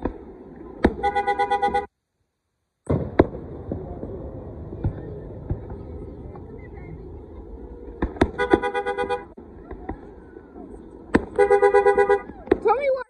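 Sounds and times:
fireworks crackling and pops: 0.0 - 1.2, 2.8 - 13.0
fireworks bangs: 0.0 - 1.9, 2.8 - 13.0
car horn honks: 1.0 - 1.9, 8.3 - 9.3, 11.3 - 12.3.

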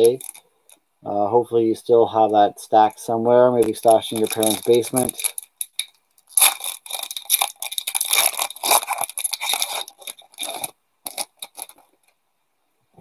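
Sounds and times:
foil wrapper tearing and crinkling: 0.0 - 0.5, 3.6 - 11.9.

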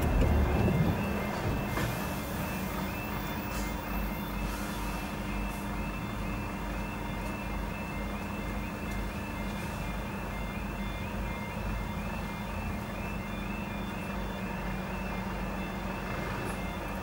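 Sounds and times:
low rumble: 0.0 - 2.1
level crossing warning alarm: 0.0 - 17.0.

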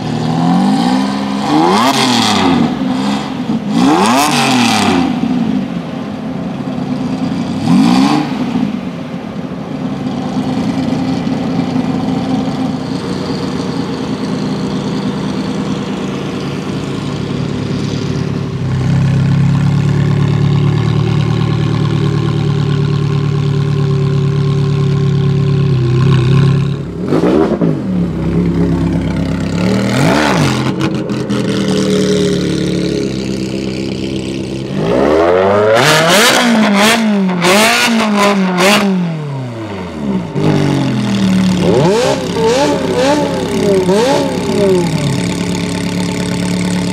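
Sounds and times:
car engine idling: 0.0 - 46.9
car engine revving: 0.0 - 46.9
exhaust cracks: 10.4 - 38.9, 39.8 - 46.9.

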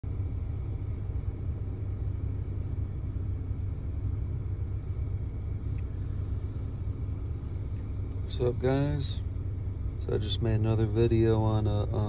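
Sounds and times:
car interior rumble: 0.0 - 12.0.

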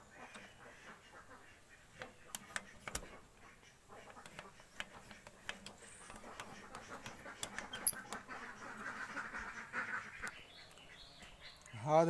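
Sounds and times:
ducks quacking: 0.0 - 5.2, 5.8 - 12.0
fuel primer pump clicking: 2.0 - 3.2, 4.0 - 8.9.

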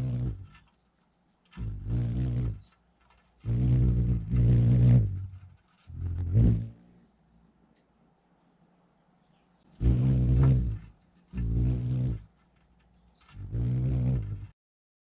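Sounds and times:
hummingbird wings humming: 0.0 - 0.8, 1.5 - 7.0, 9.7 - 14.5.

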